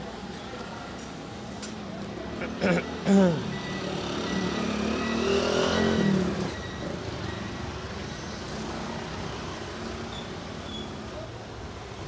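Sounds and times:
traffic hum: 0.0s - 12.0s
motorbike engine passing: 3.9s - 6.5s.

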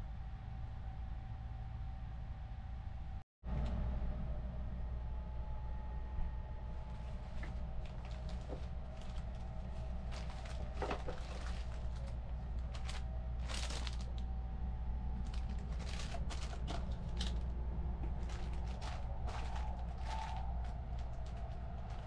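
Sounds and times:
train running rumble: 2.5s - 22.0s
plastic wrapping crinkling: 6.9s - 14.2s, 15.2s - 17.4s, 18.0s - 22.0s.

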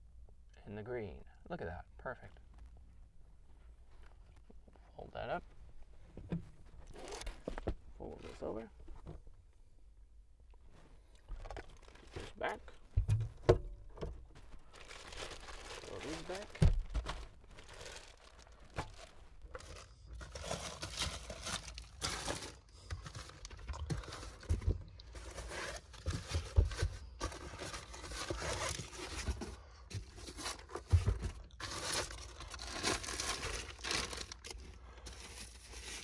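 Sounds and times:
plastic bags crinkling: 11.2s - 13.0s, 14.2s - 29.2s, 30.2s - 36.0s.

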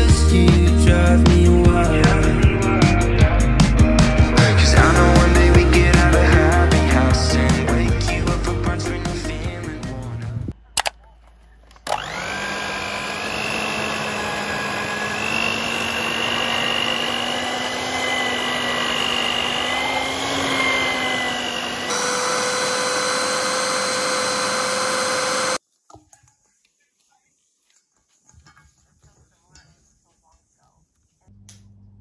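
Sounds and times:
stand mixer motor whine: 11.9s - 25.6s
dough being kneaded by hand: 25.6s - 31.3s.

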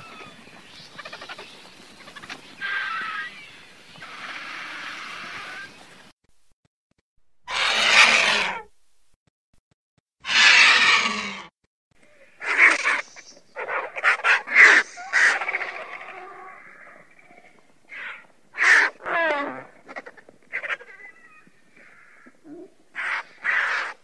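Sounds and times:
vultures calling harshly: 0.0s - 6.0s, 7.4s - 8.7s, 10.2s - 11.5s, 12.2s - 24.0s
vulture squealing: 2.6s - 5.8s, 7.4s - 8.7s, 10.2s - 11.5s, 12.3s - 17.0s, 23.0s - 24.0s.

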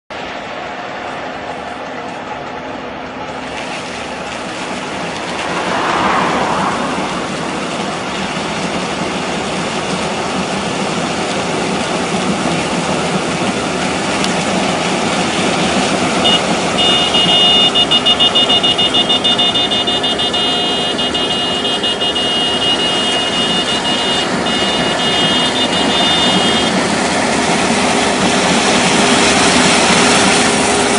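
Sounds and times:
combine harvester running: 0.1s - 30.9s
high steady tone: 16.2s - 26.8s.

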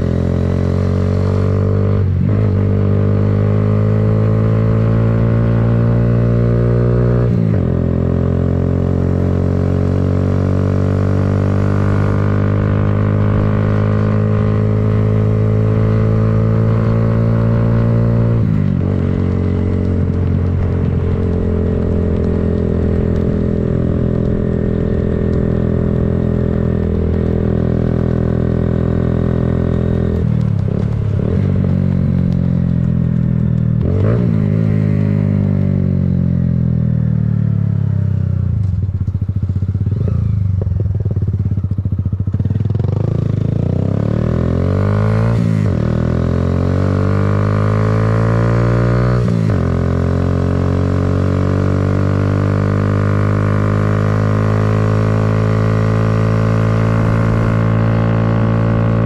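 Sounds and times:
motorbike engine running: 11.2s - 36.7s, 37.6s - 44.7s.

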